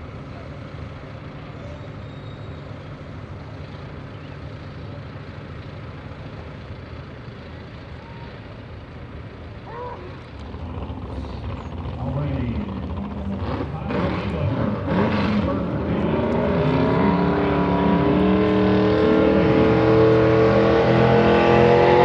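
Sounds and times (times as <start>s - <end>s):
tractor engine idling: 0.0s - 14.4s.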